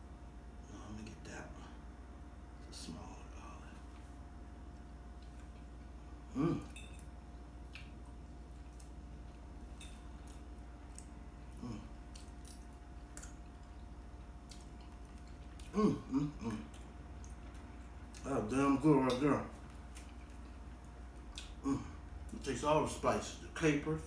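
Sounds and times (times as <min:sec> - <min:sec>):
man humming: 0:06.3 - 0:06.8, 0:11.5 - 0:12.0, 0:15.6 - 0:16.8, 0:21.6 - 0:22.0.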